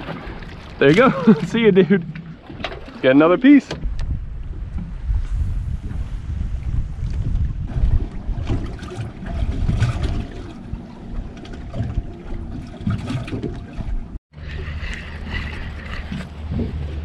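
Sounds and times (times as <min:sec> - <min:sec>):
water lapping against boat hull: 0:00.0 - 0:17.0
wind buffeting microphone: 0:03.6 - 0:17.0.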